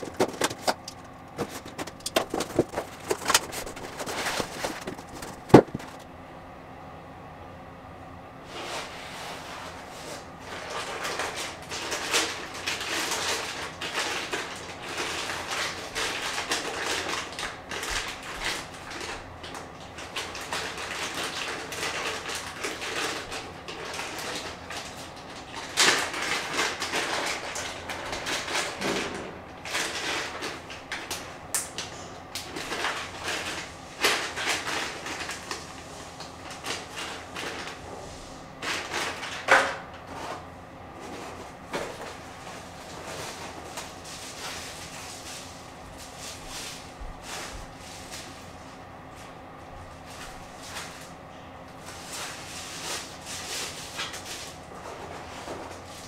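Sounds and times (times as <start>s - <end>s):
plastic bags crinkling: 0.0s - 6.0s, 10.5s - 28.8s, 32.4s - 37.8s.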